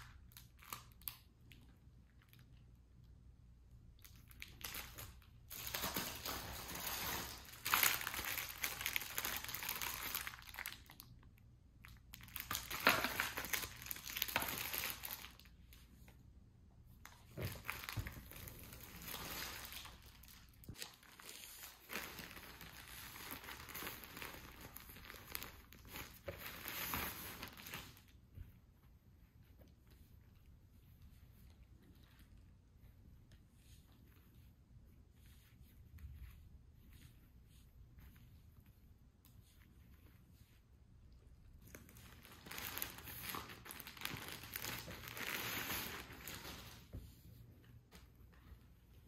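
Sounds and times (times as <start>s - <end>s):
plastic packaging crinkling: 4.0s - 11.3s, 11.9s - 15.6s, 17.0s - 28.1s, 41.7s - 46.8s.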